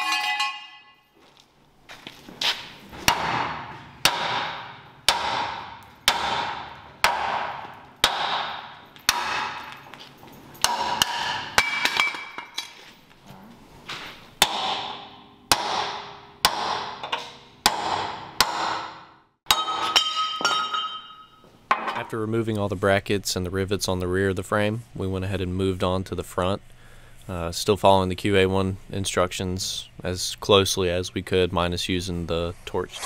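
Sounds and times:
sledgehammer striking steel frame: 0.0s - 1.0s, 3.0s - 9.9s, 10.6s - 12.6s, 14.4s - 22.0s.

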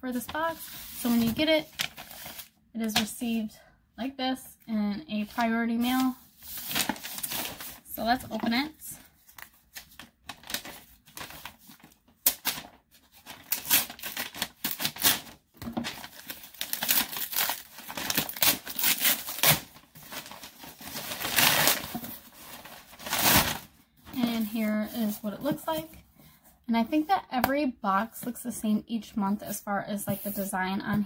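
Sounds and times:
package tearing and crinkling: 9.8s - 23.7s.

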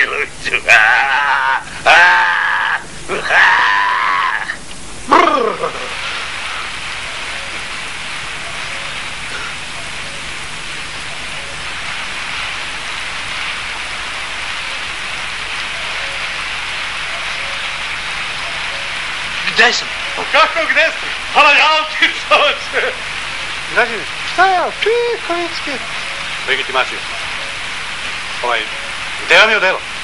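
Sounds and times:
wailing cries: 0.0s - 11.9s
heavy rain: 0.0s - 30.0s.

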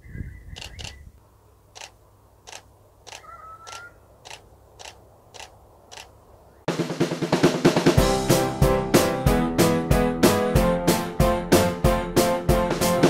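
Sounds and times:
camera shutter clicking: 0.5s - 1.0s, 1.8s - 6.2s.

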